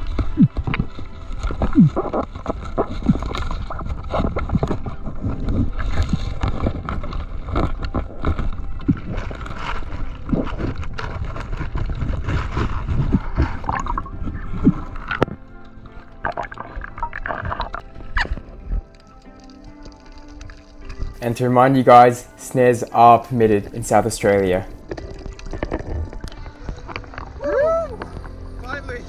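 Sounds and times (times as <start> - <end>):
underwater rumble: 0.0 - 21.2
water gurgling: 0.0 - 21.2, 23.9 - 28.6
knocks and scrapes on rock: 1.5 - 15.4.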